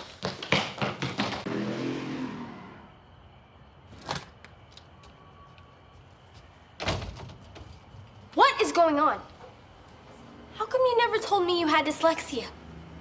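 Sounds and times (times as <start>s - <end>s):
running footsteps on hard floor: 0.0s - 1.5s.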